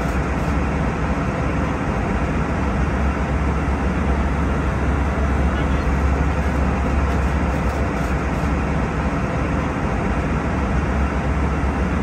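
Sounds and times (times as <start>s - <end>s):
airflow and engine rush: 0.0s - 12.0s
deep constant hum: 0.0s - 12.0s.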